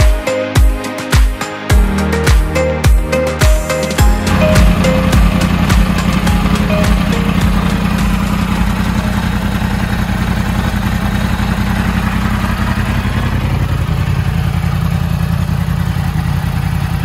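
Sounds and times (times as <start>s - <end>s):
motorcycle engine idling: 4.0s - 17.0s.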